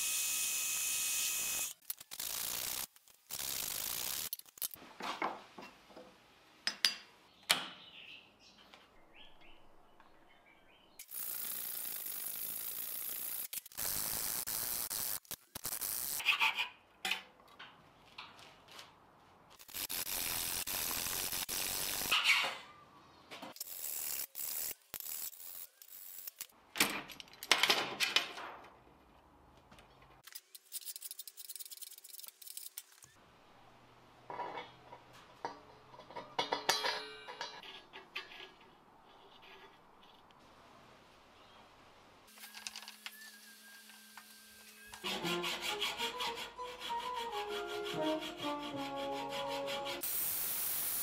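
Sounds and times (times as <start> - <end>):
metal parts clinking on bench: 36.0 - 38.5
steady hiss: 50.0 - 51.0.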